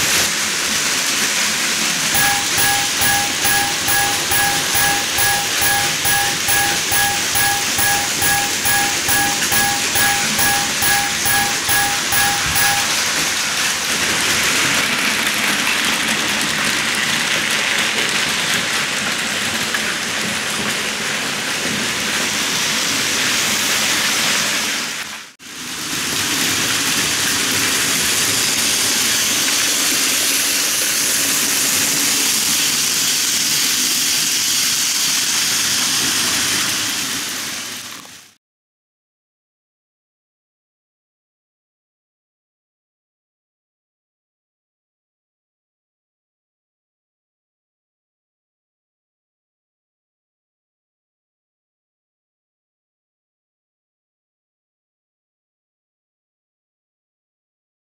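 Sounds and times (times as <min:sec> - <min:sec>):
model trains running on track: 0:02.2 - 0:12.9
level-crossing warning bell dinging: 0:02.2 - 0:13.2.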